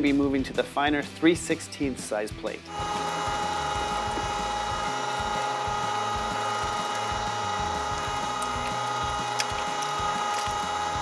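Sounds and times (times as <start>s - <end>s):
electric meat grinder motor whine: 2.7s - 11.0s.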